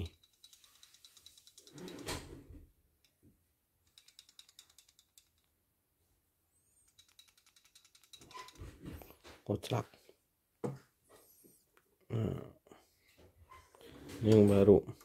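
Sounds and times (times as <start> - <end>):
machine hook clicking and rattling: 0.0 - 2.2, 3.8 - 5.5, 6.9 - 8.7.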